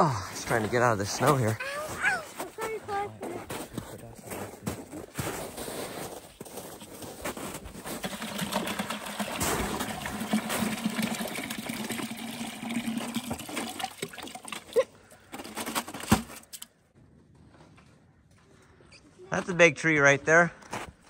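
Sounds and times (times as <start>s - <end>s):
liquid pouring into plastic bucket: 7.8s - 16.0s.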